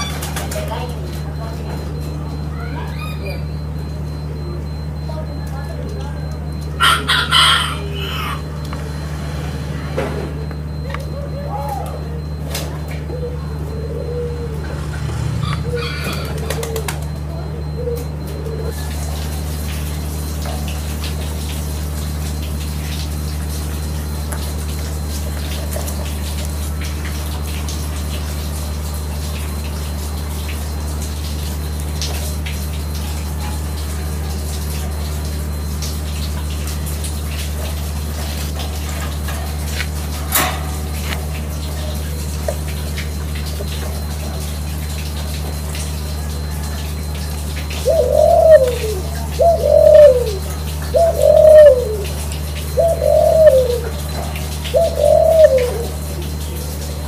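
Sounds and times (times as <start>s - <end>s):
dove cooing: 0.0s - 21.2s, 36.7s - 57.0s
low mechanical hum: 0.0s - 57.0s.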